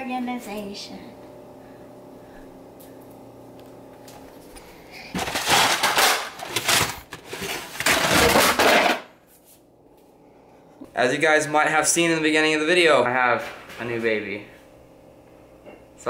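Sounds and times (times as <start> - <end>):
low steady hum: 0.0 - 16.0
boxes rattling and scraping on shelf: 5.1 - 9.0.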